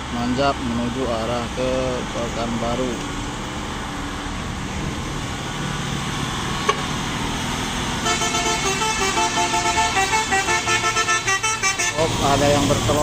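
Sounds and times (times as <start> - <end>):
road noise: 0.0 - 13.0
truck diesel engine pulling uphill: 0.0 - 13.0
multi-tone horn melody: 8.0 - 12.2.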